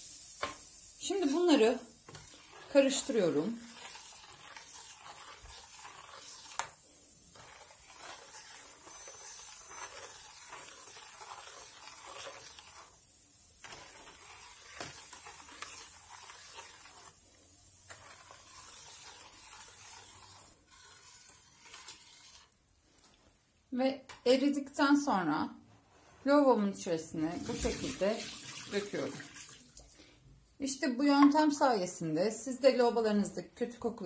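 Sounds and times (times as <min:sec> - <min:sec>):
spoon stirring in metal pot: 0:01.2 - 0:23.2.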